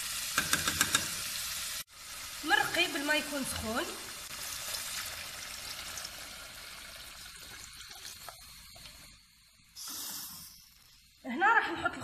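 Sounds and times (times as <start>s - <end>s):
food frying in fat: 0.0s - 11.5s
water pouring into a pot: 2.0s - 11.2s.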